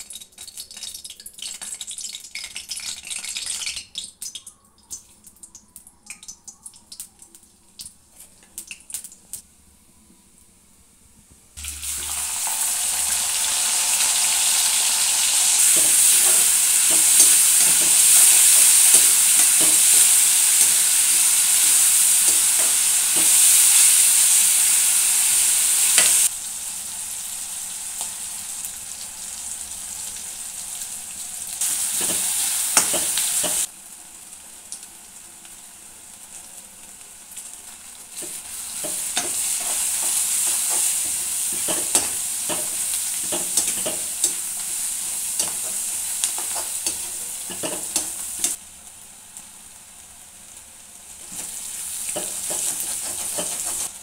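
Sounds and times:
onions sizzling in hot oil: 11.6s - 54.0s
metal spatula scraping pan: 52.2s - 54.0s.

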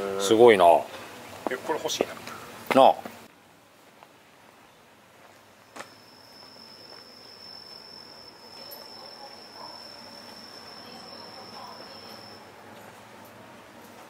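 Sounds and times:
high-pitched whine: 5.7s - 12.5s.

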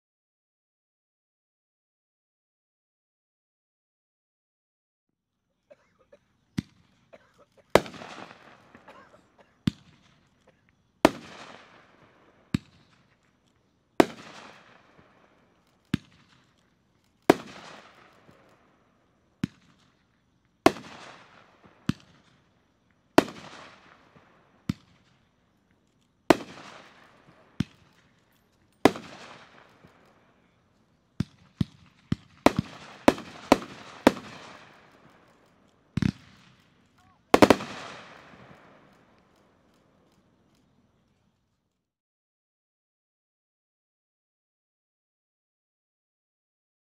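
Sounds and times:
firework reports: 31.2s - 35.2s, 36.0s - 38.6s.

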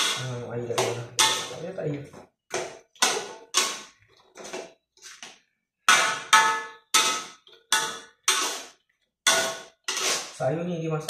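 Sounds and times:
metal spatula clanking on wok: 0.0s - 1.7s, 5.9s - 8.7s, 9.3s - 10.2s.

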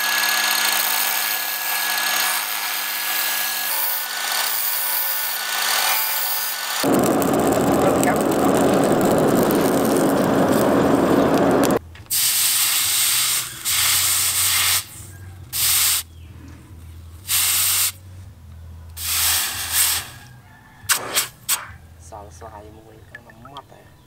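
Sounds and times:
charcoal forge rushing: 6.8s - 11.8s.

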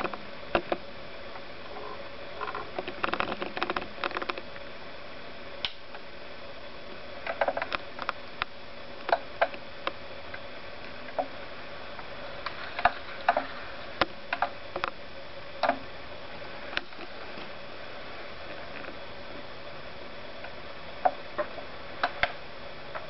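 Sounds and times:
small clicks and taps: 0.0s - 0.8s, 2.4s - 4.4s
faint steady hum: 0.0s - 23.0s
steady hiss: 0.0s - 23.0s.

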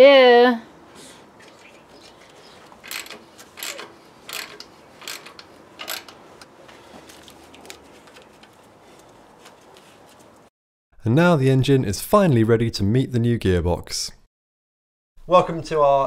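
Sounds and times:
faint tool noises: 0.9s - 10.5s
ratchet wrench clicking: 2.8s - 6.2s.

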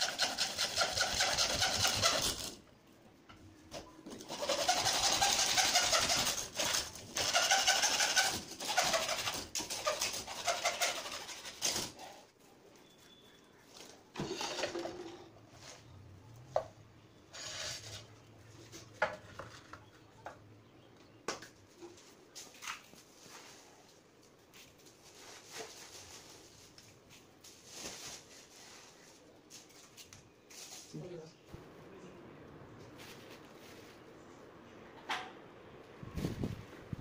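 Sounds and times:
scraping rustles: 21.7s - 31.0s.

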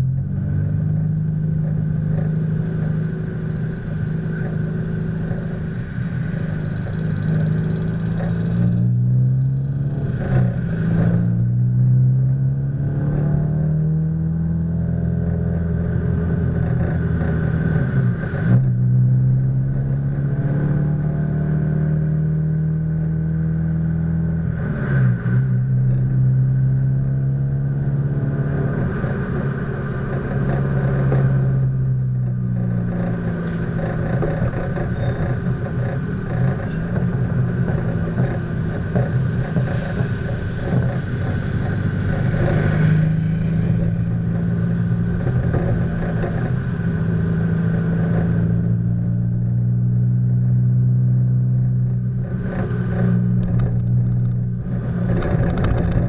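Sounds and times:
car engine accelerating: 0.0s - 56.0s.

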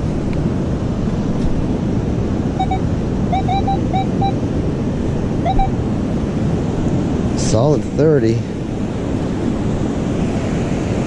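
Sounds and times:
wind noise: 0.0s - 11.0s
metal detector beeps: 2.6s - 4.4s, 5.4s - 5.8s.

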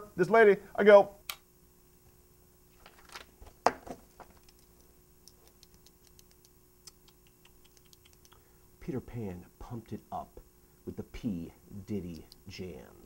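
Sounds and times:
paper rustling: 2.7s - 4.6s.

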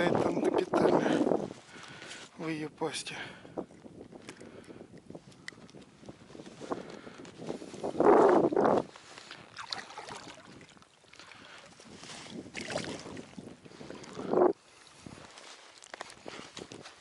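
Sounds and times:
water splashing: 8.2s - 15.0s.

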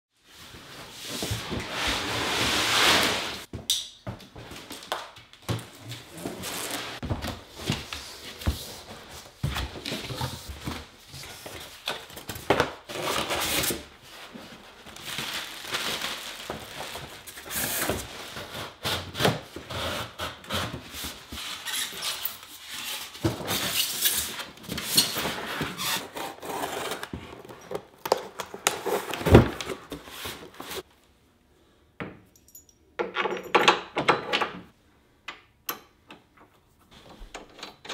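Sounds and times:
cardboard box scraping and rustling: 23.1s - 27.9s.

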